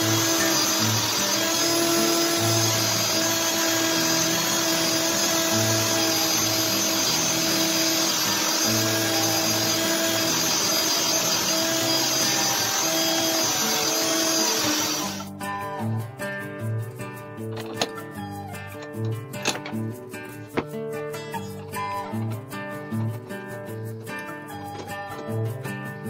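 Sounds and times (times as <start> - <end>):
drill motor whine: 0.0 - 15.3.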